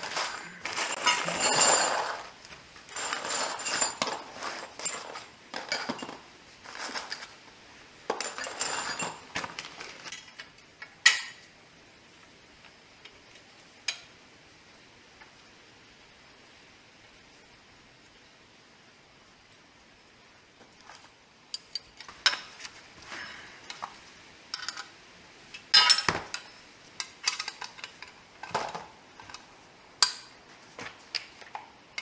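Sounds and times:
metal brackets and bolts clinking: 0.0 - 7.4, 8.1 - 10.4, 24.5 - 25.0, 25.6 - 30.3.

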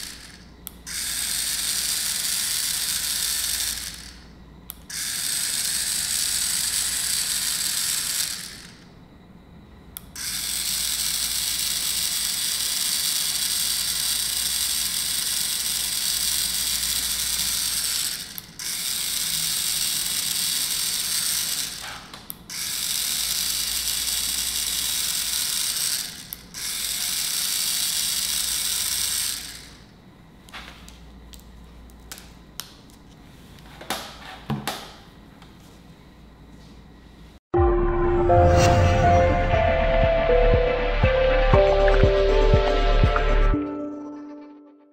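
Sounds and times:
pen motor and gears whirring: 0.0 - 8.9, 10.1 - 29.9.

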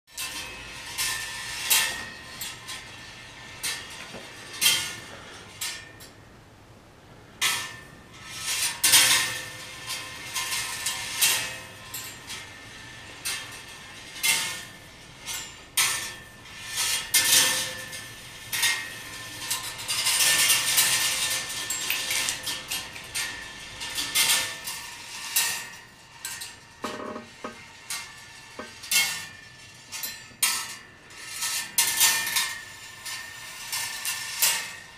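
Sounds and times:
balls rolling rattle: 0.1 - 6.1, 7.4 - 34.9
metal balls clicking on wire: 7.4 - 34.9.

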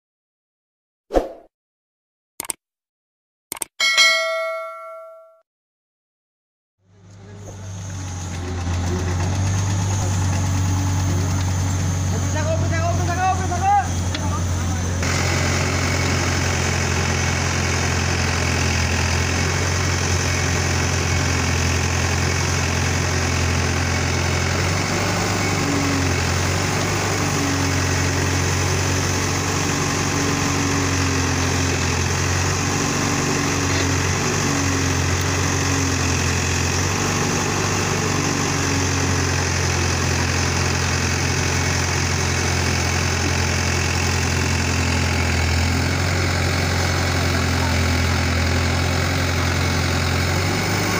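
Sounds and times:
backhoe diesel engine running: 6.9 - 50.9.

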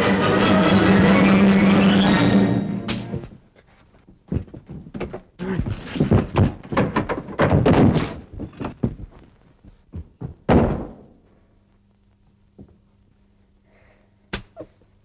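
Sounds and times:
thuds and knocks of scuffle: 4.3 - 11.0
loud thump: 10.5 - 11.1.

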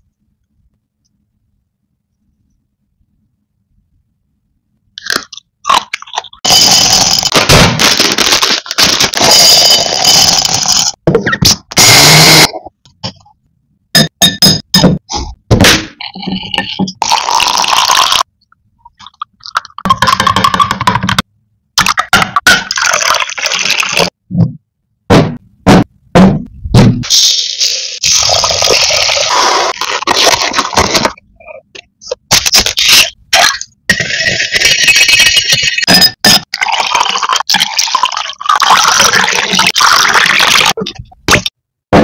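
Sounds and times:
water poured into a glass: 36.6 - 40.7.

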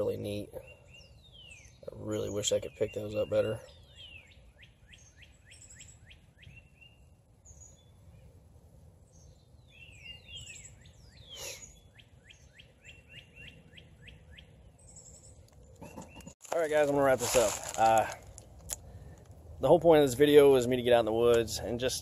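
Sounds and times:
songbird whistling: 9.2 - 16.4.

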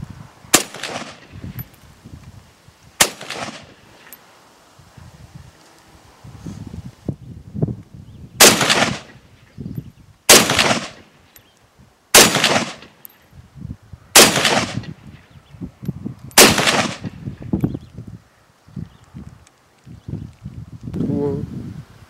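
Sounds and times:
rifle shots with echo: 0.5 - 1.3, 3.0 - 3.8, 8.4 - 9.2, 10.3 - 11.1, 12.2 - 13.0, 14.2 - 14.9, 16.4 - 17.2.

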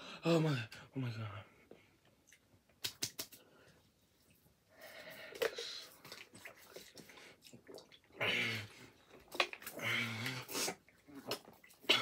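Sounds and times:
person breathing hard: 4.7 - 6.0
gulping water from plastic bottle: 5.2 - 12.0.

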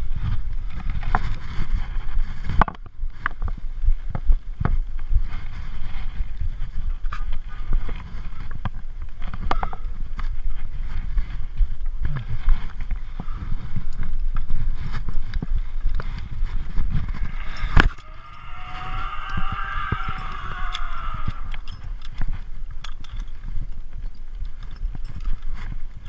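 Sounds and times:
wind rumble: 0.0 - 26.0
carabiners clinking: 16.1 - 26.0
zip-line pulley whirring: 16.4 - 22.4.

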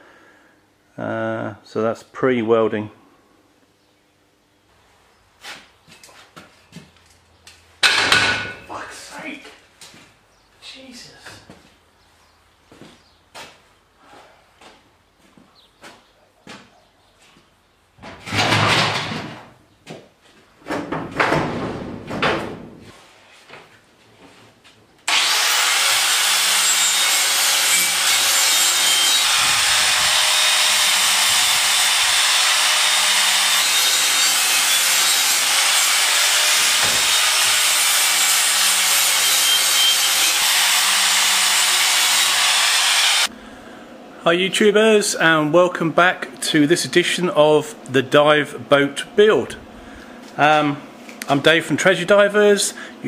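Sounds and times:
angle grinder hissing: 25.1 - 43.3.

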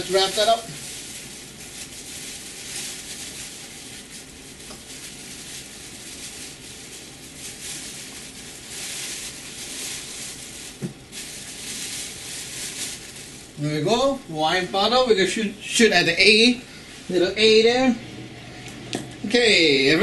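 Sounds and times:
plastic bag rustling: 0.0 - 15.2.

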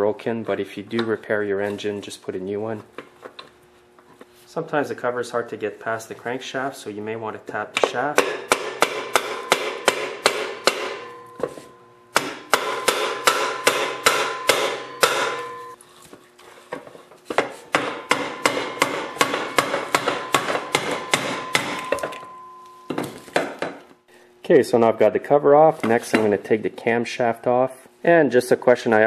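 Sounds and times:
rubber mallet tapping metal shaft: 7.8 - 15.8.

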